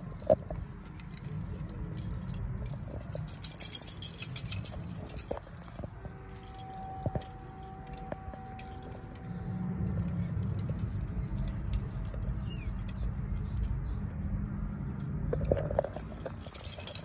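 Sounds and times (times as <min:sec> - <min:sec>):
faint steady tone: 0:00.0 - 0:17.0
light rattling and jingling: 0:00.0 - 0:17.0.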